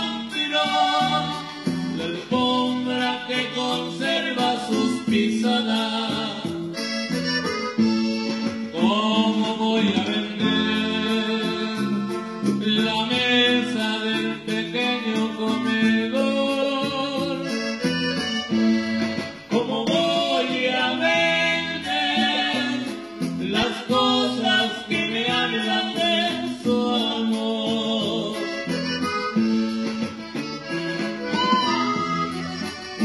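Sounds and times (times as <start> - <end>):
accordion melody: 0.0 - 33.0
guitar bass and drums: 0.0 - 33.0.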